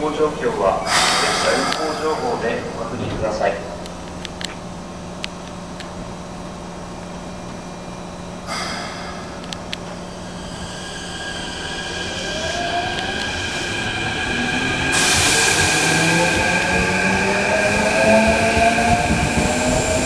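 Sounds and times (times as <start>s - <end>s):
train traction motor whine: 0.0s - 20.0s
air hiss: 0.8s - 2.9s, 8.4s - 17.0s.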